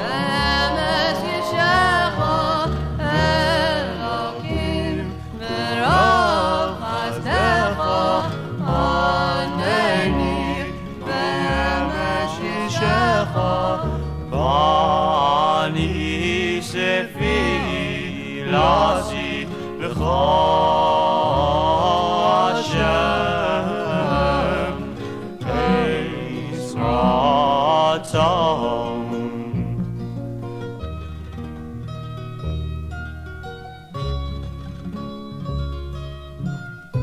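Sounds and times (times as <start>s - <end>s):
religious song on vinyl record: 0.0s - 37.0s.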